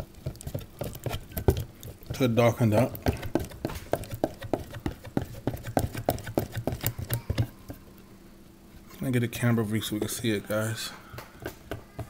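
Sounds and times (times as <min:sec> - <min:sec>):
whisk clicking in plastic container: 0:00.2 - 0:07.5.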